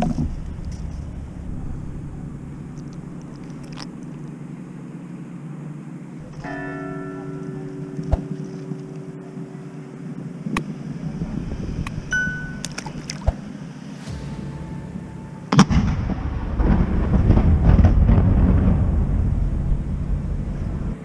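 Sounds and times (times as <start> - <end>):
steady low hum: 0.0 - 21.0
bell ringing: 6.4 - 10.1, 12.1 - 12.7.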